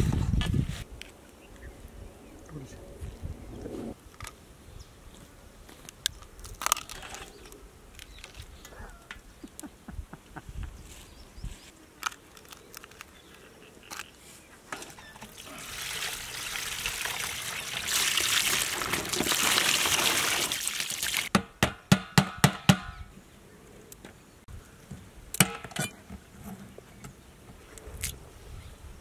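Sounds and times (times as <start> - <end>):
sharp knocks: 21.3 - 23.0.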